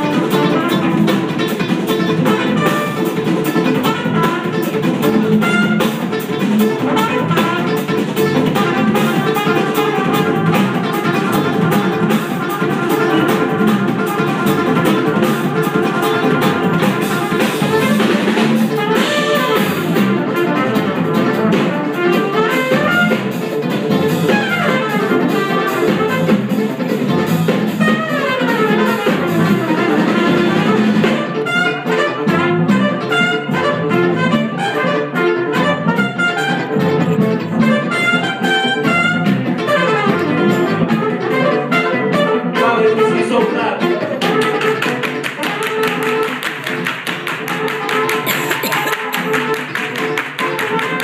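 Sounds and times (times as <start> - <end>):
drum kit hits: 0.0 - 31.4, 44.3 - 51.0
jazz fusion band playing: 0.0 - 51.0.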